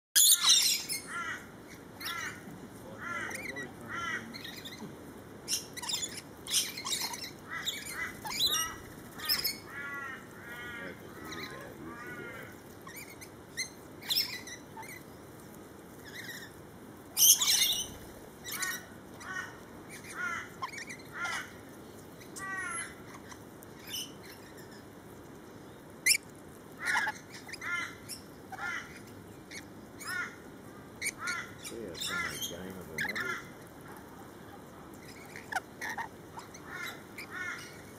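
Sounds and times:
loud harsh bird screech: 0:00.2 - 0:01.1
lorikeets squawking and chirping: 0:00.2 - 0:15.2, 0:16.0 - 0:16.6, 0:17.2 - 0:21.6, 0:22.2 - 0:24.9, 0:26.0 - 0:37.9.

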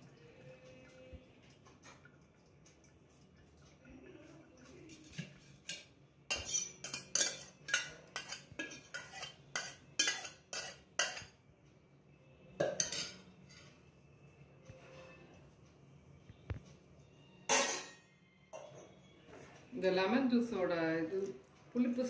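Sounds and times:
spoon scraping metal pot: 0:05.0 - 0:11.3, 0:12.6 - 0:13.6.

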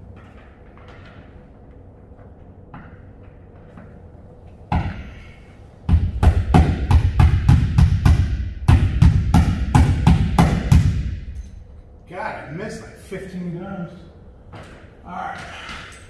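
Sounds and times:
hammer striking metal ceiling: 0:05.9 - 0:11.4.

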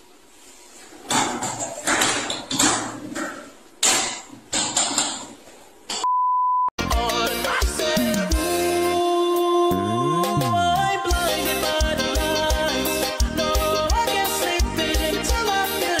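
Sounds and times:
music: 0:06.8 - 0:16.0.

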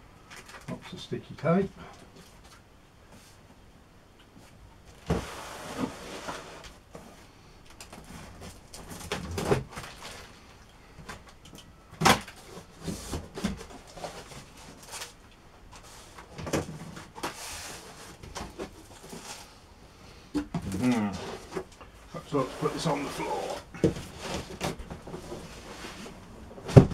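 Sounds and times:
cardboard box bumps and rustles: 0:23.2 - 0:26.9.

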